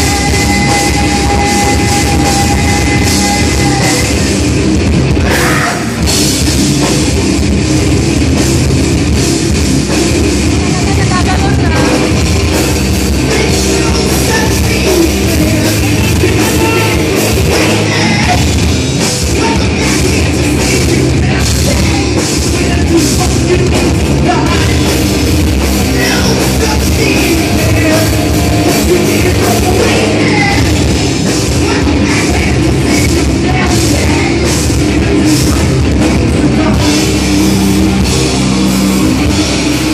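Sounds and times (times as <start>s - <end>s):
person singing into a microphone: 0.0s - 4.4s, 5.2s - 6.0s, 10.6s - 12.2s, 13.1s - 18.6s, 19.3s - 38.2s
bass: 0.0s - 39.9s
drum kit: 0.0s - 39.9s
electric guitars: 0.0s - 39.9s.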